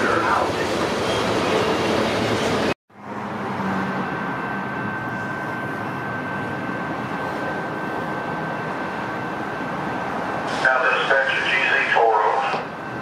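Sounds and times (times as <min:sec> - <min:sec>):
vehicle rumble: 0:02.9 - 0:08.9
faint high whine: 0:04.0 - 0:13.0.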